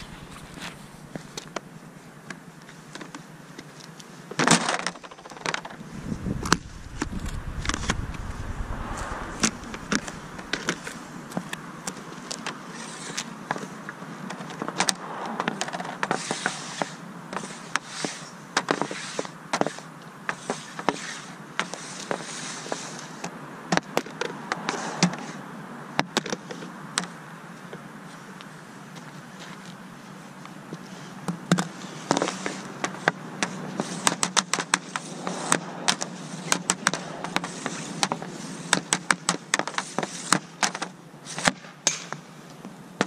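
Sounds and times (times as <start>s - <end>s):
low rumble: 5.7s - 11.4s, 36.6s - 37.7s
pucks clacking on plastic pad: 11.3s - 21.0s.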